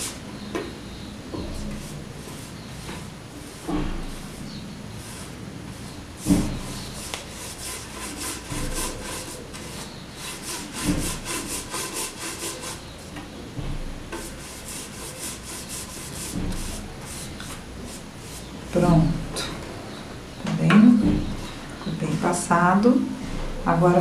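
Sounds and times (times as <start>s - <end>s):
paintbrush bristle strokes: 14.2s - 18.5s.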